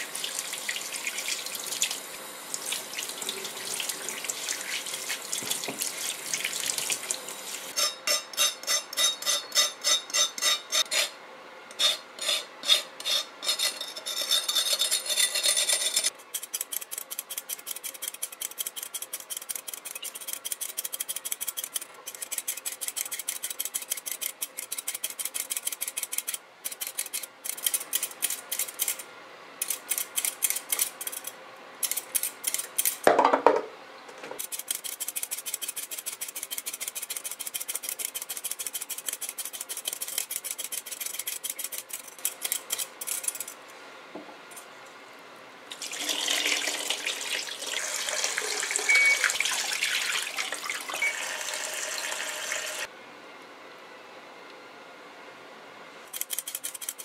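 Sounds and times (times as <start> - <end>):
vegetable peeler scraping root: 7.7 - 33.0, 34.4 - 43.6, 56.1 - 57.0.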